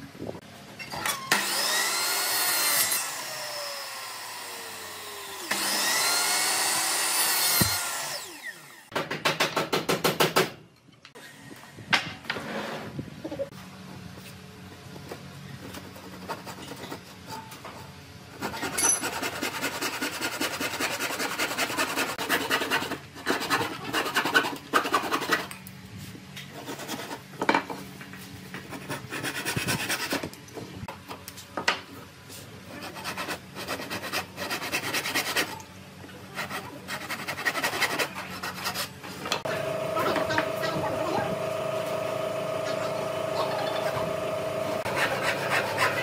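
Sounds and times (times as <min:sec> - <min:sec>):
wood rasping with abrasive tool: 0:01.4 - 0:08.8, 0:18.4 - 0:25.4, 0:32.7 - 0:35.6, 0:36.3 - 0:39.0, 0:44.4 - 0:46.0.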